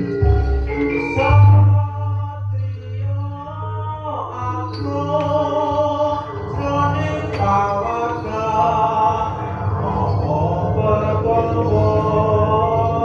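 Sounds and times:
sharp percussion strikes: 0:00.0 - 0:01.8
gamelan music: 0:00.0 - 0:13.0
group of voices singing and chanting: 0:00.0 - 0:13.0.

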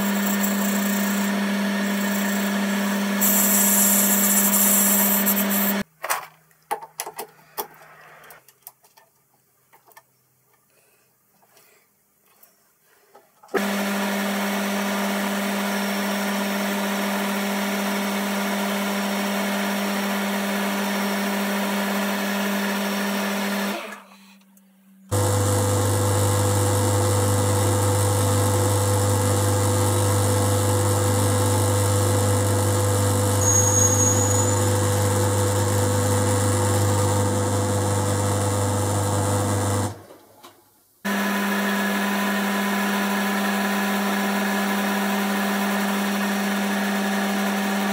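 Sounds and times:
lathe running hum: 0:00.0 - 0:05.8, 0:25.1 - 0:40.0, 0:41.1 - 0:47.9.

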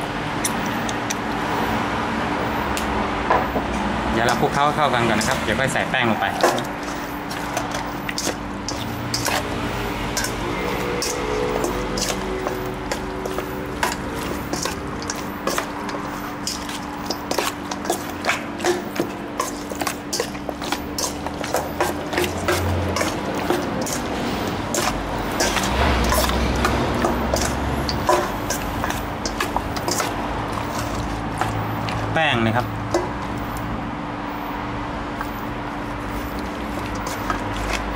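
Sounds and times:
wet squelching of chicken: 0:04.2 - 0:33.7, 0:35.8 - 0:37.9
clicks against metal bowl: 0:10.2 - 0:32.0.

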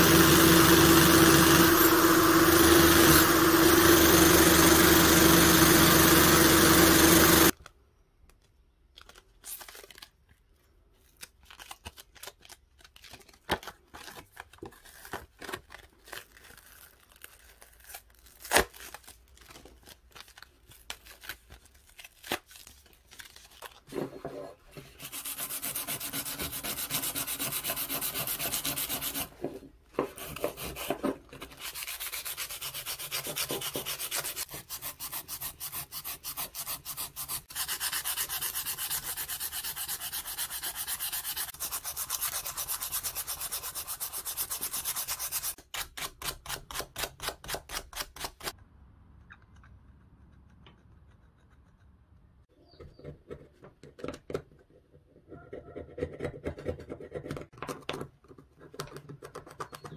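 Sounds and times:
hand sanding: 0:24.8 - 0:29.4, 0:30.0 - 0:45.6.

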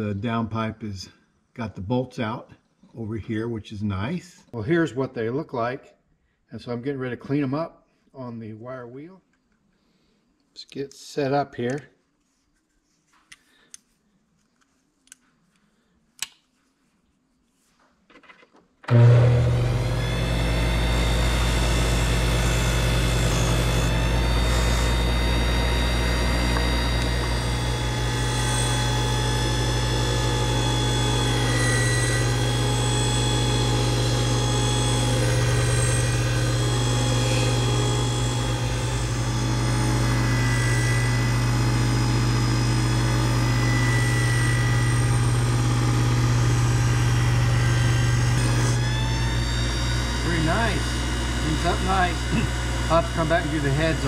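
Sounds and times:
bench grinder motor hum: 0:18.9 - 0:54.0.

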